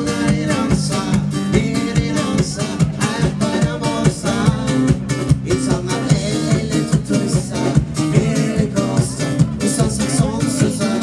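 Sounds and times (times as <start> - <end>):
steady drum beat: 0.0 - 11.0.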